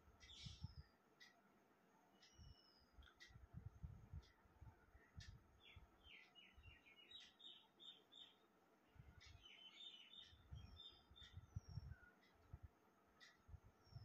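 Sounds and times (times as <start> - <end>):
birds chirping: 5.0 - 12.5.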